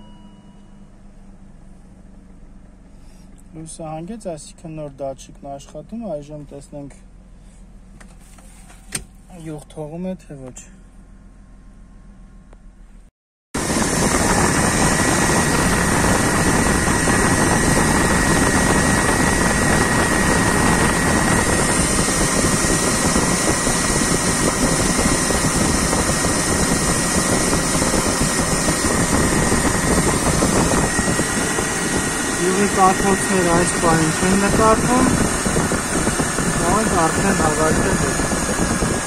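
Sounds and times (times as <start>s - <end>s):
high whine: 0.0s - 2.3s, 13.6s - 39.0s
car engine idling: 0.0s - 13.0s, 13.6s - 39.0s.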